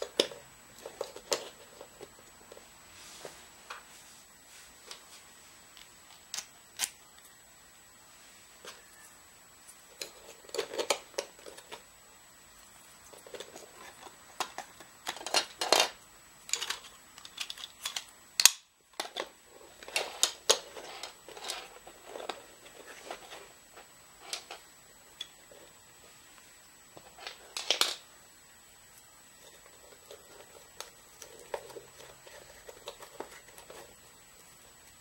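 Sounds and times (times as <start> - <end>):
plastic pieces clicking and knocking: 9.9 - 11.8, 13.1 - 22.4, 27.0 - 28.0.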